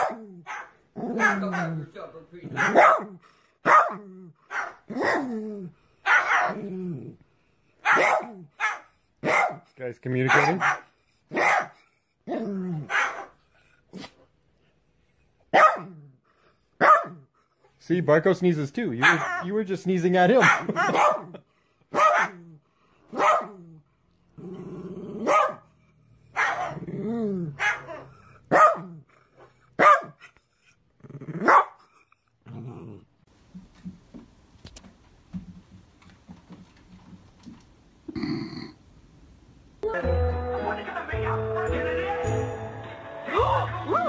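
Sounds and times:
dog barking: 0:00.0 - 0:05.3, 0:06.0 - 0:06.6, 0:07.8 - 0:11.8, 0:12.8 - 0:13.4, 0:15.5 - 0:16.0, 0:16.8 - 0:17.3, 0:19.0 - 0:19.5, 0:20.4 - 0:22.5, 0:23.1 - 0:23.7, 0:25.2 - 0:25.7, 0:26.3 - 0:26.9, 0:27.5 - 0:29.0, 0:29.8 - 0:30.2, 0:31.4 - 0:31.8
parrot growling: 0:00.0 - 0:07.3, 0:12.2 - 0:13.0, 0:23.3 - 0:29.6, 0:30.9 - 0:33.3, 0:38.1 - 0:38.8.

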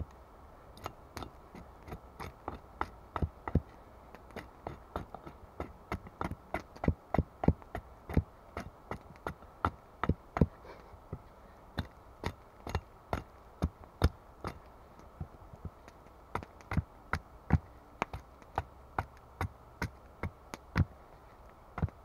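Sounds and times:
hatchet chopping wooden stick: 0:00.8 - 0:11.2, 0:11.8 - 0:21.0, 0:21.8 - 0:22.0.

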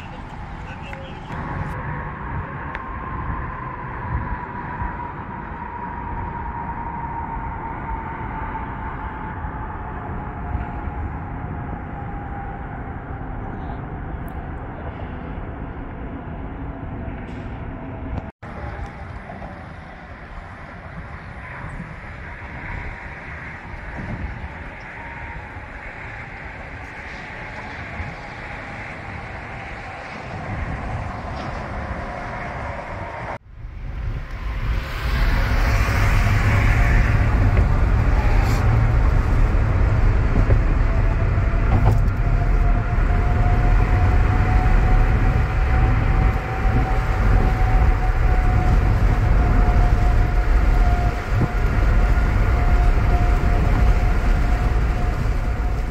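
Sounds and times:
heavy low rumble: 0:00.0 - 0:55.9
tyre and wind noise: 0:00.0 - 0:55.9.

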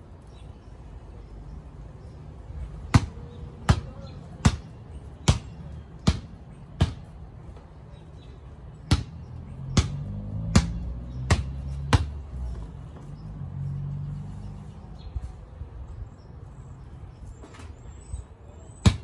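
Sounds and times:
basketball bouncing on concrete: 0:02.7 - 0:07.6, 0:08.8 - 0:13.1.

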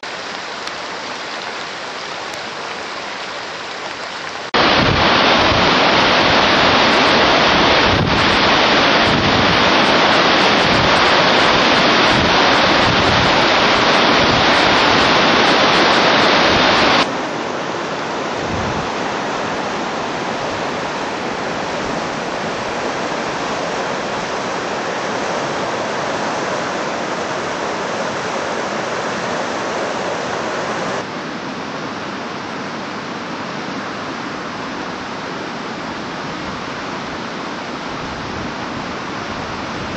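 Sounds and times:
floodwater roaring: 0:00.0 - 0:39.9
wind buffeting microphone: 0:04.6 - 0:31.1.

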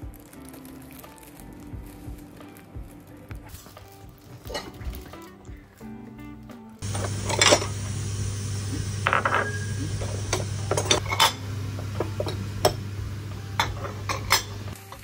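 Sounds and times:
low hum: 0:06.8 - 0:14.8
ceramic bowls clinking: 0:06.8 - 0:15.0.

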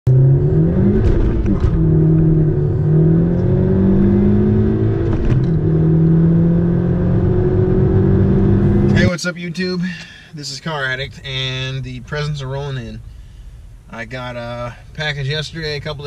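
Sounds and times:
car engine accelerating: 0:00.1 - 0:09.1.

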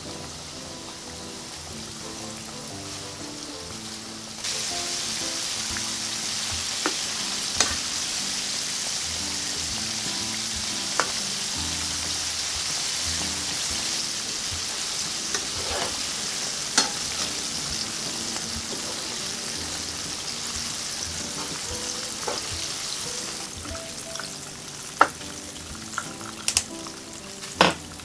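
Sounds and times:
chicken deep-frying in hot oil: 0:00.0 - 0:28.0.

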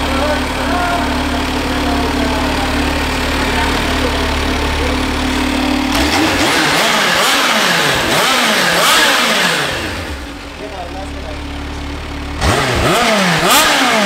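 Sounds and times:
motorcycle engine idling and revving: 0:00.0 - 0:14.0.

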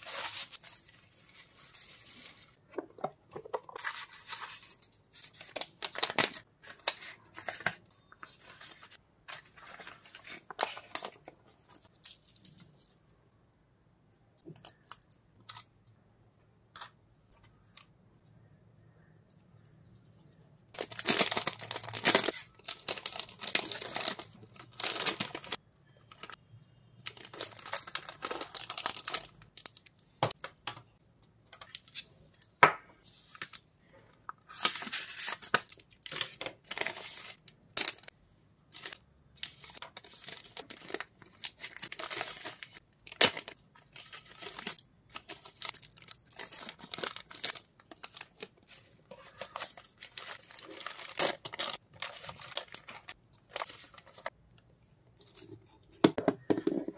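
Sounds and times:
plastic packaging crinkling: 0:00.0 - 0:13.0, 0:20.7 - 0:26.4, 0:27.0 - 0:30.8, 0:34.5 - 0:54.4.

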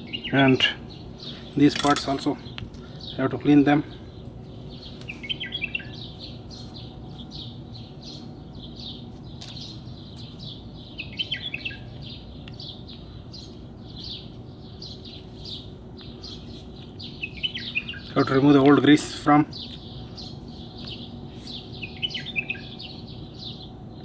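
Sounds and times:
faint steady background hum: 0:00.0 - 0:24.0
small birds chirping: 0:00.0 - 0:24.0.

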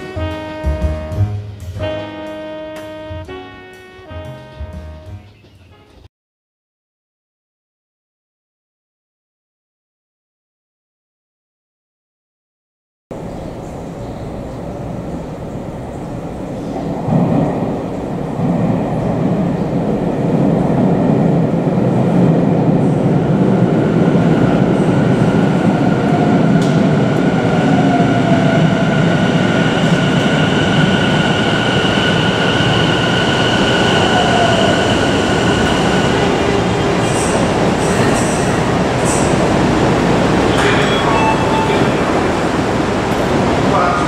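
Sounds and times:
high train whine: 0:00.0 - 0:05.2, 0:13.1 - 0:44.0
train wheels rumbling: 0:13.1 - 0:44.0.

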